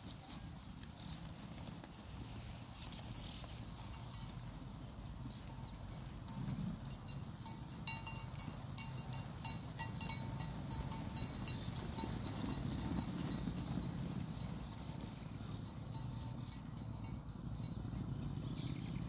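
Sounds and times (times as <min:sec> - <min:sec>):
sheep hooves clicking on dirt: 0:00.0 - 0:19.0
faint ringing tones: 0:02.8 - 0:19.0.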